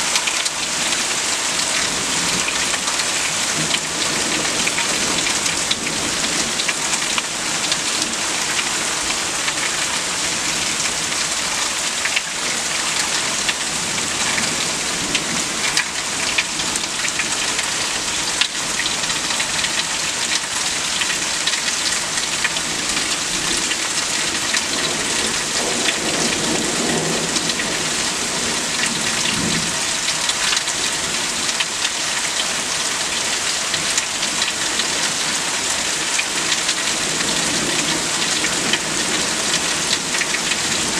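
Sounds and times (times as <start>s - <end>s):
steady rain: 0.0s - 40.9s.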